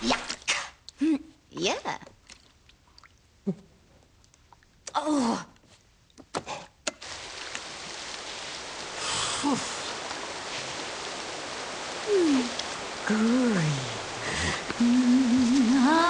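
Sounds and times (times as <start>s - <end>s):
steady water-like hiss: 5.7s - 16.0s.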